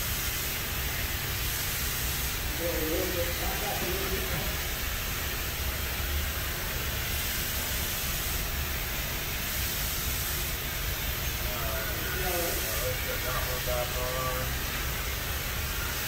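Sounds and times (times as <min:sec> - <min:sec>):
even hiss: 0:00.0 - 0:16.0.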